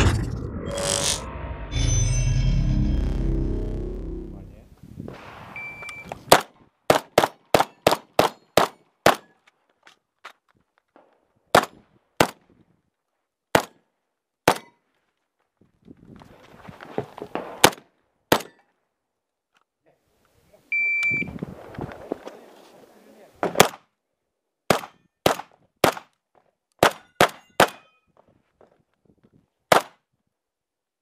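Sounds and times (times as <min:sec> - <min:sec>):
electronic beep: 0:00.4 - 0:04.3, 0:05.6 - 0:06.1, 0:20.7 - 0:21.3
shuffling: 0:21.4 - 0:23.2
shotgun shots: 0:24.7 - 0:26.1, 0:26.8 - 0:27.9.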